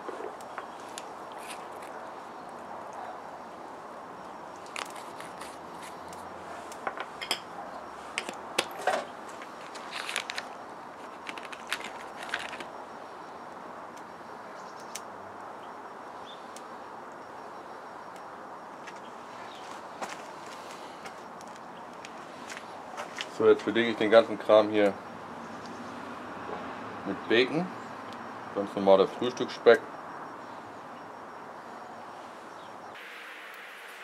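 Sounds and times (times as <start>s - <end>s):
steady background hiss: 0.0s - 34.0s
plastic package crinkling: 9.6s - 12.7s.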